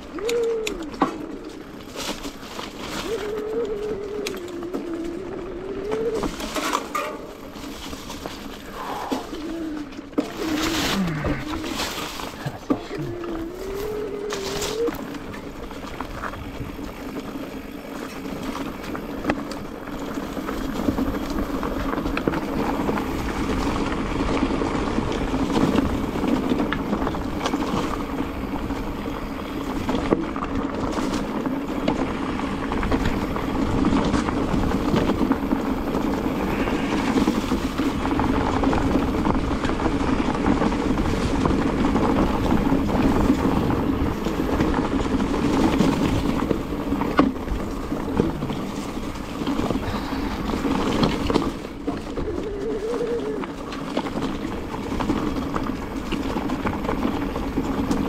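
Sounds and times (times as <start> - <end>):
bike rattling and knocking: 0.0 - 58.0
bike tyres on dirt and stones: 0.0 - 58.0.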